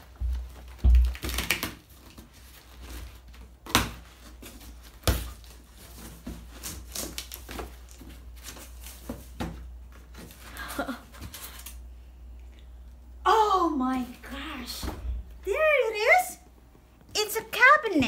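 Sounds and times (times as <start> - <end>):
cardboard flaps pried open: 0.3 - 2.2, 3.6 - 10.3.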